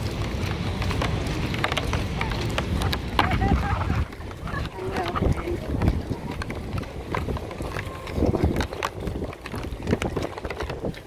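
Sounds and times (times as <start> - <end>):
footsteps: 0.0 - 11.0
people talking: 2.0 - 8.6.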